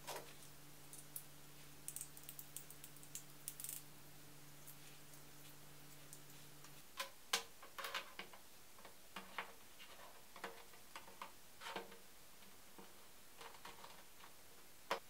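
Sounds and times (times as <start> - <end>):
plastic parts clicking and knocking: 7.0 - 12.0.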